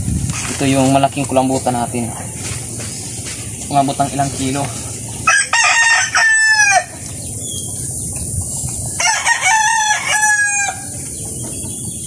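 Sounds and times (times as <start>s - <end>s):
steady high hiss: 0.0s - 10.1s
rooster crowing: 5.2s - 7.0s, 9.0s - 11.0s.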